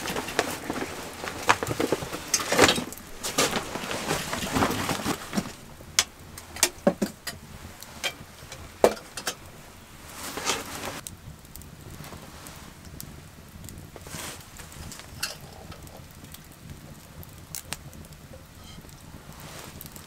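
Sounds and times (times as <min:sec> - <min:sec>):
objects set down on wooden boards: 0:00.0 - 0:05.6
gear rustling: 0:00.0 - 0:11.0.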